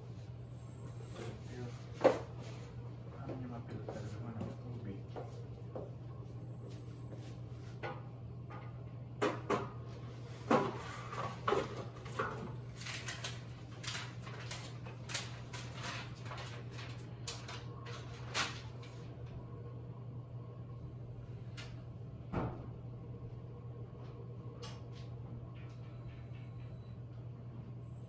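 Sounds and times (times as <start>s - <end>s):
steady low hum: 0.0s - 28.0s
plastic and cardboard rustling: 10.5s - 19.0s.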